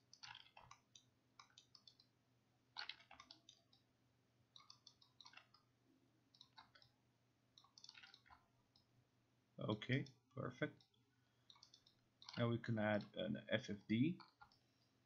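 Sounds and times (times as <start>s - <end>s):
mouse and keyboard clicking: 0.0s - 2.1s, 2.8s - 3.8s, 4.5s - 5.6s, 6.3s - 6.9s, 7.6s - 8.9s, 10.8s - 13.1s.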